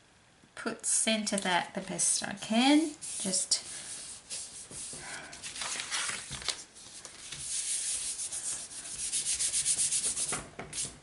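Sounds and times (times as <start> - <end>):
hands rubbing paper: 2.9 - 11.0.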